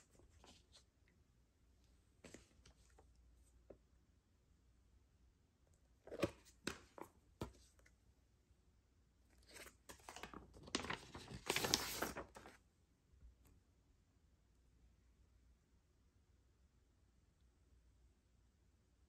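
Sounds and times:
paper sleeve rustling: 9.4s - 12.6s.

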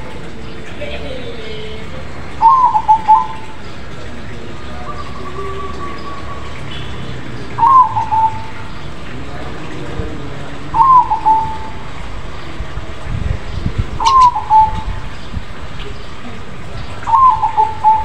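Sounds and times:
dove cooing: 0.7s - 3.6s, 4.2s - 9.8s, 10.5s - 12.0s, 14.0s - 15.2s, 17.0s - 18.0s.

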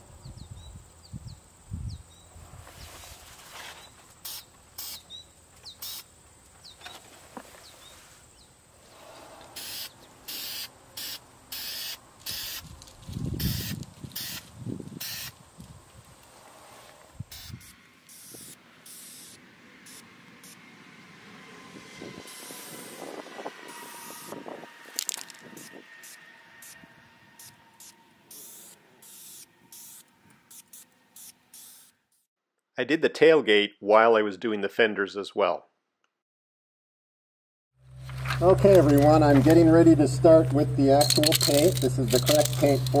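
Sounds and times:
spray can hissing: 4.2s - 5.0s, 9.6s - 12.6s, 13.4s - 15.3s, 17.3s - 20.0s, 27.4s - 32.0s.

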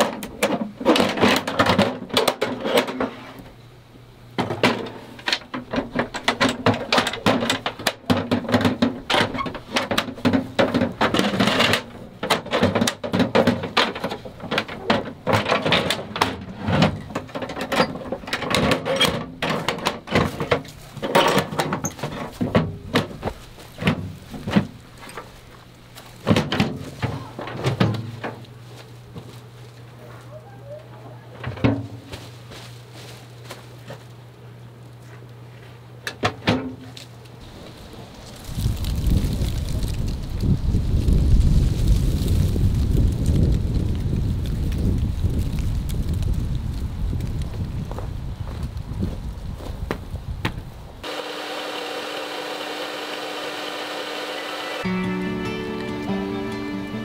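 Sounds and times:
knocks and thumps: 4.4s - 25.3s, 26.2s - 28.4s
rustling of camping gear: 13.5s - 36.0s, 36.8s - 51.0s.

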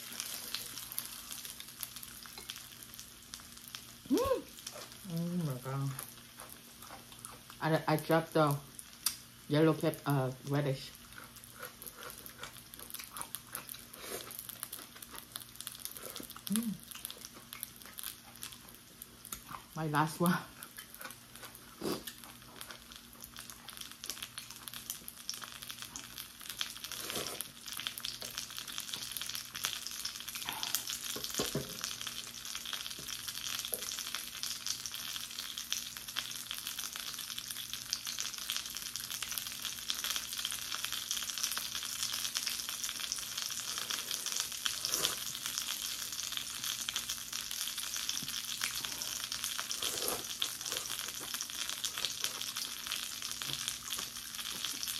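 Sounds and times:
dumplings sizzling in frying pan: 0.0s - 54.9s.

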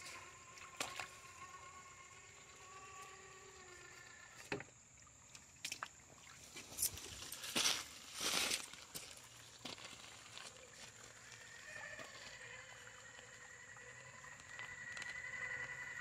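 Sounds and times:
toy motor and gears whining: 0.0s - 4.6s, 10.4s - 16.0s
water splashing: 3.5s - 16.0s.

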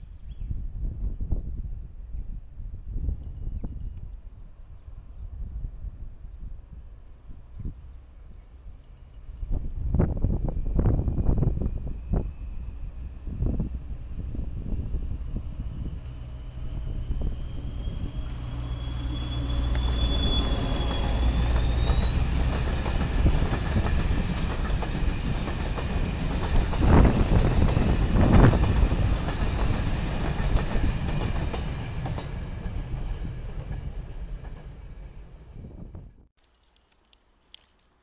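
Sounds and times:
diesel locomotive drone: 5.7s - 36.2s
rising whine: 14.8s - 22.5s.

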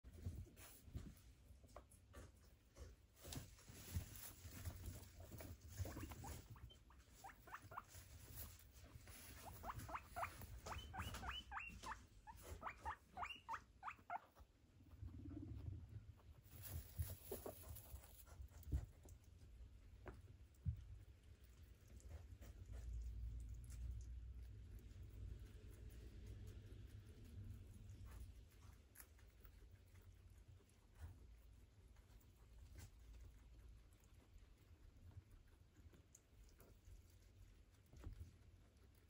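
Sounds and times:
faint rustling: 0.0s - 13.6s, 14.2s - 25.7s
guinea pigs squeaking: 4.2s - 19.3s.

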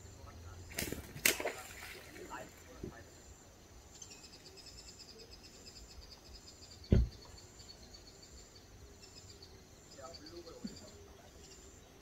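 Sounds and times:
dull thump: 6.9s - 7.3s.

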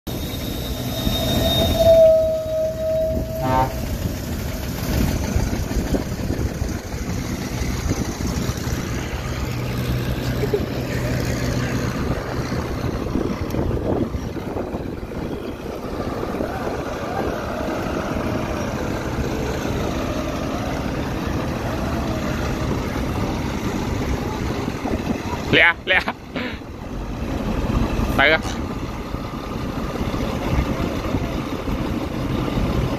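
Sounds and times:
horn-like tone: 0.1s - 4.3s
bulldozer diesel engine under load: 0.1s - 32.9s.

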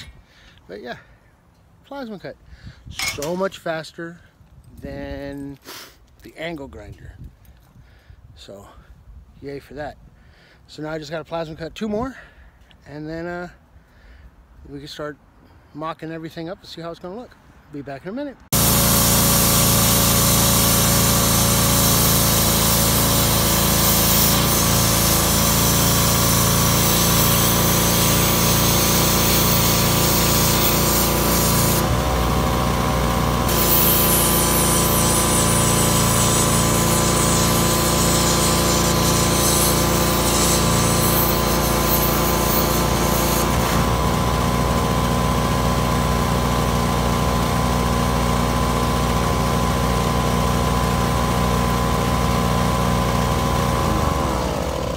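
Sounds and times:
plasma cutter hissing: 18.6s - 31.9s, 33.5s - 43.6s.

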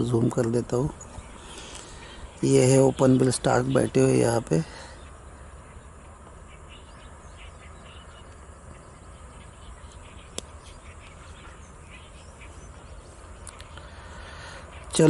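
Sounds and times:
distant bird calls: 0.0s - 15.0s.

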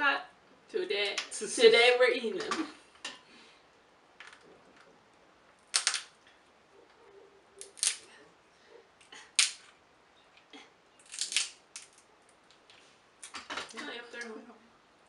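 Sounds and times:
crab shells cracking: 5.7s - 6.2s, 7.6s - 8.1s, 11.0s - 13.4s.

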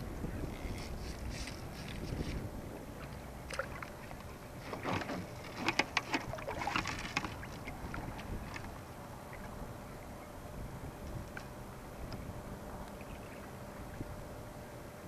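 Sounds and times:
low wind rumble: 0.0s - 15.0s
water splashing: 3.4s - 9.6s
kayak clicks and knocks: 4.6s - 8.7s.

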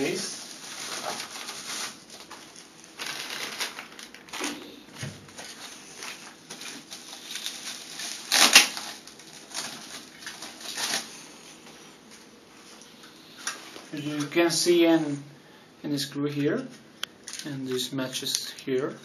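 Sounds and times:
plastic wrapping crinkling: 0.0s - 11.9s.

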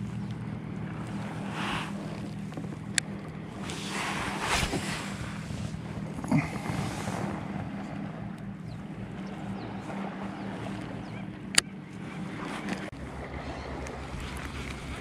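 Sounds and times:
fishing reel spool whirring: 0.0s - 15.0s
steady low hum: 0.0s - 15.0s
reel click: 1.0s - 3.8s, 11.5s - 11.8s.

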